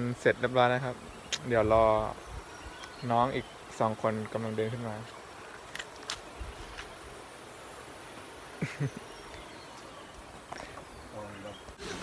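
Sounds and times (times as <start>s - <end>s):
faint insects chirring: 0.0s - 12.0s.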